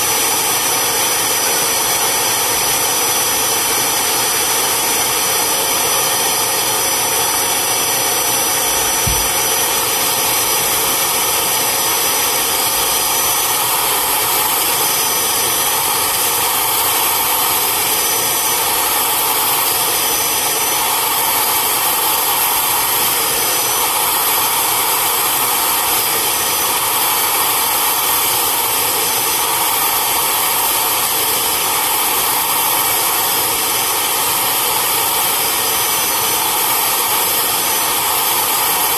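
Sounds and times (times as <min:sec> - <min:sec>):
vacuum extractor motor whirring: 0:00.0 - 0:38.9
low thud: 0:09.0 - 0:09.4.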